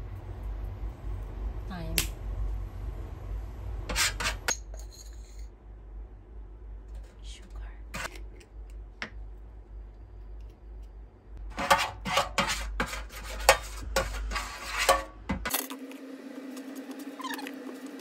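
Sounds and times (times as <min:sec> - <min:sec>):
steady low hum: 0:00.0 - 0:15.5
metal spoon scraping pan: 0:03.9 - 0:05.5, 0:11.5 - 0:15.2.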